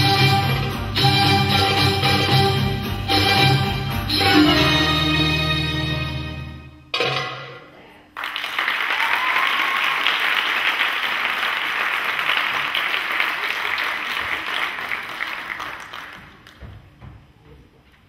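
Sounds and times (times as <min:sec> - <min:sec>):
audience applause: 0:08.2 - 0:16.6.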